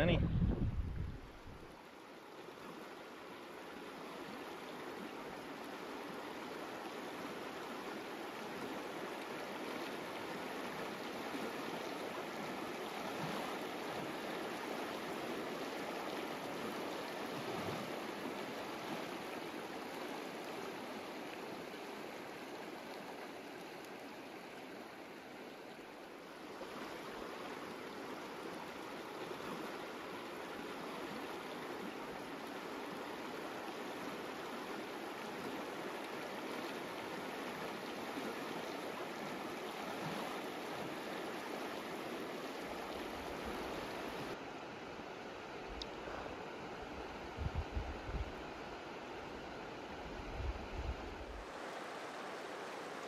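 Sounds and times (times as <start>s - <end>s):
river rushing over gravel: 26.2s - 45.2s, 51.1s - 53.0s.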